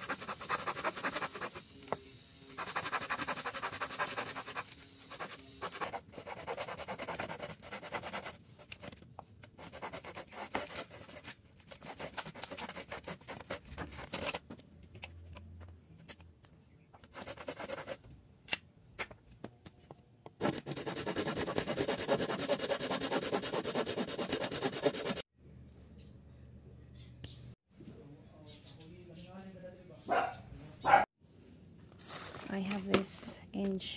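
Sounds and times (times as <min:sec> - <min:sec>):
handsaw cutting wood: 0:00.0 - 0:01.6, 0:02.6 - 0:08.2, 0:20.4 - 0:25.2.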